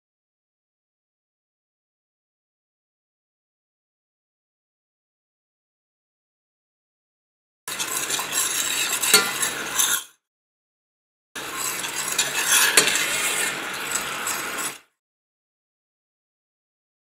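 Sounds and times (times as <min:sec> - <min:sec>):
spoon scraping a metal pan: 0:07.7 - 0:10.2, 0:11.4 - 0:14.9.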